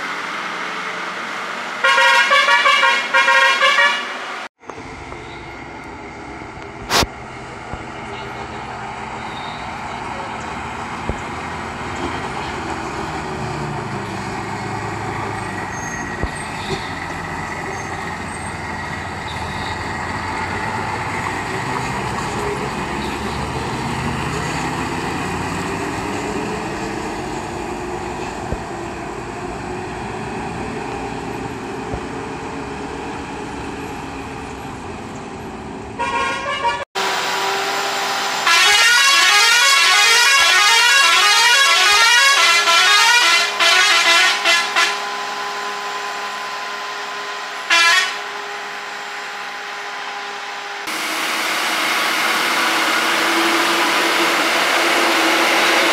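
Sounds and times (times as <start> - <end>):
lorry diesel engine passing: 0.0 - 55.9
truck horn: 1.8 - 4.3, 9.2 - 9.8, 36.0 - 45.7, 47.6 - 48.5.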